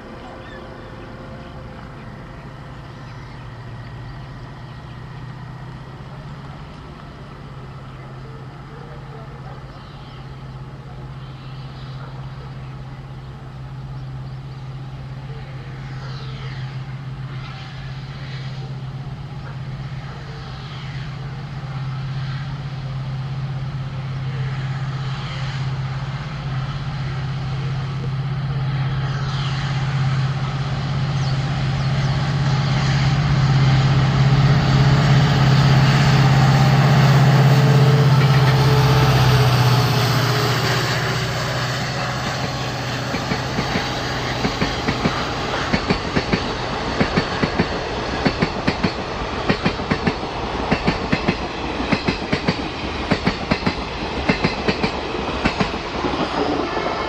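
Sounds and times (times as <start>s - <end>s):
diesel locomotive engine droning: 0.0s - 57.0s
train wheels clacking over rail joints: 42.2s - 57.0s.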